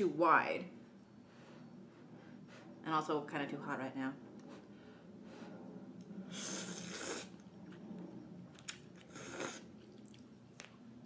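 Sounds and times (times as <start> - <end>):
person slurping noodles: 6.3 - 7.4, 9.1 - 9.7.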